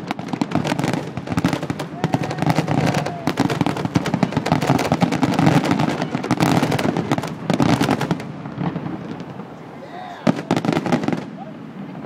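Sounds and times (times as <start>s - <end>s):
fireworks bangs and pops: 0.0s - 12.0s.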